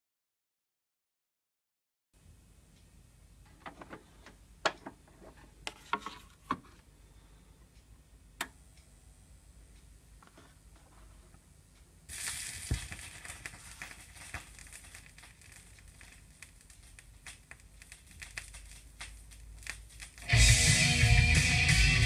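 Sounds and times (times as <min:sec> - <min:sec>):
vinyl surface hiss and crackle: 0:02.7 - 0:22.0
music with guitar: 0:20.2 - 0:22.0.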